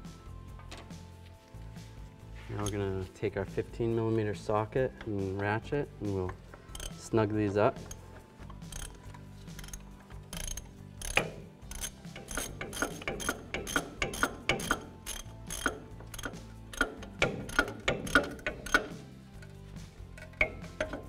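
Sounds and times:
socket ratchet clicking: 0:06.6 - 0:07.0, 0:07.8 - 0:21.0.

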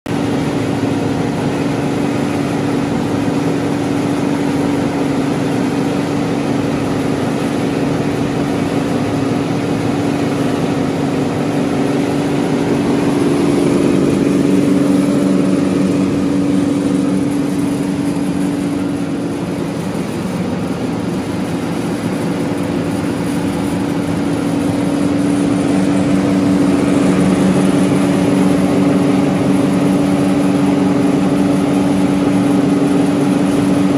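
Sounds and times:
belt sander motor humming: 0:00.2 - 0:33.9.

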